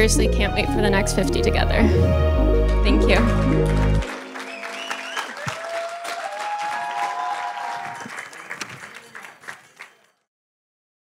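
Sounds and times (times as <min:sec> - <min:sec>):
crowd applauding: 0:02.6 - 0:10.3
people cheering: 0:02.9 - 0:10.2.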